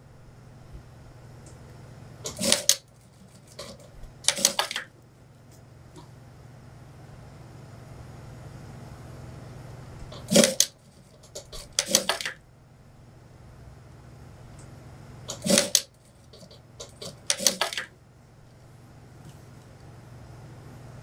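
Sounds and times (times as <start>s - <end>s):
sewing machine stitching: 2.3s - 4.9s, 10.2s - 12.4s, 15.3s - 17.9s.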